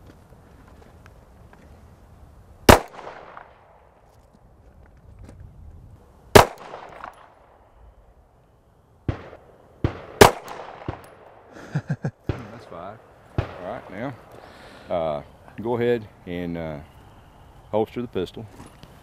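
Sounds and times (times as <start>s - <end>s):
pistol shots with echo: 2.7s - 3.9s, 6.3s - 7.6s, 9.1s - 11.5s, 12.2s - 14.4s.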